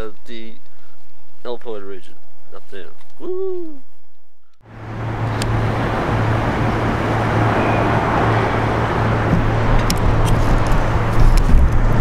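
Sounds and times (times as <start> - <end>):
constant low hum: 0.0 - 12.0
road traffic: 4.6 - 12.0.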